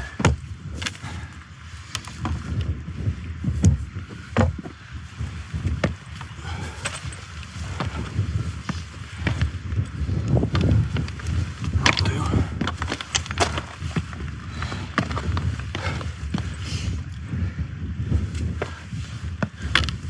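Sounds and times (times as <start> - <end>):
poles and boots on rock: 0.0 - 20.0
wind buffeting microphone: 0.0 - 20.0.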